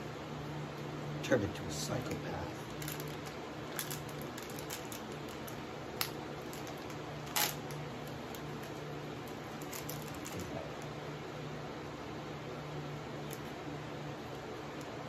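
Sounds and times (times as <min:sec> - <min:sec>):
plastic wrapper crinkling: 0:02.7 - 0:10.9.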